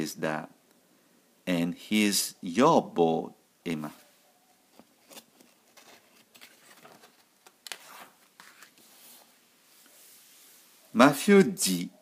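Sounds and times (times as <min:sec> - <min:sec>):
soft rustles: 0:03.8 - 0:11.0.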